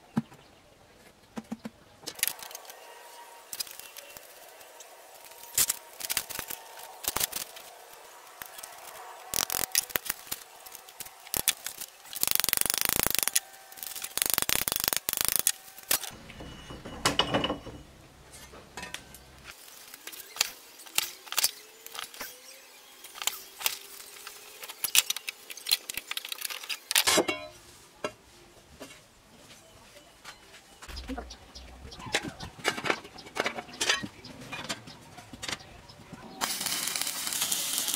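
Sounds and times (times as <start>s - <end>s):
metal sheet clinking and knocking: 16.4s - 19.1s.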